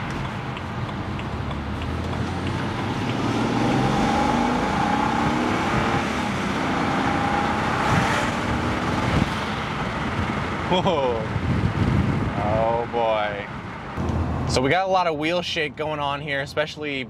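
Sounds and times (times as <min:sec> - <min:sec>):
car engine accelerating: 0:00.0 - 0:10.7
road noise: 0:00.0 - 0:17.0.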